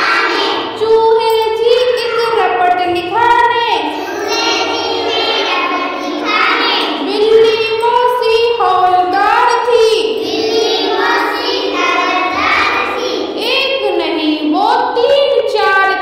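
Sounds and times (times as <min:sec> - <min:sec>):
children singing: 0:00.0 - 0:00.8, 0:03.8 - 0:13.5.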